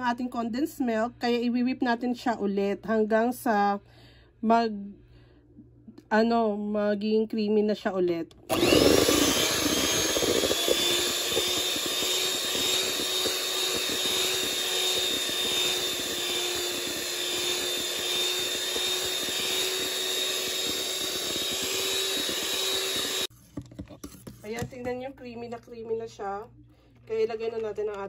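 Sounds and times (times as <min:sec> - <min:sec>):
electric hand mixer whining: 0:08.5 - 0:23.3.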